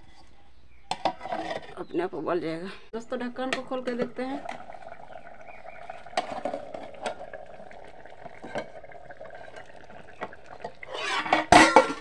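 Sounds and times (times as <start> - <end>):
curry simmering with pops: 3.4 - 12.0
steel lid clattering: 10.8 - 12.0.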